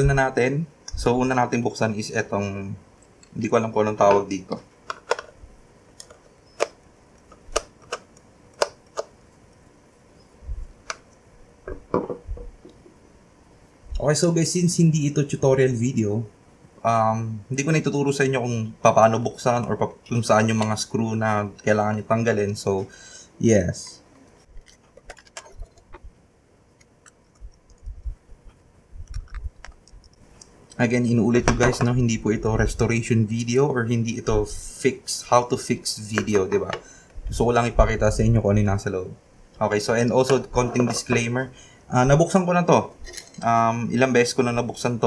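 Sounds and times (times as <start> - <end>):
plastic clicks and snaps: 4.5 - 5.3, 6.0 - 9.6, 29.0 - 30.6.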